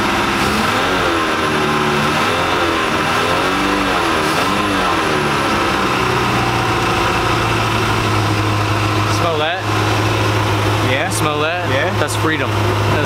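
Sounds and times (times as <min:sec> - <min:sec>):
boat engine revving: 0:00.0 - 0:13.0.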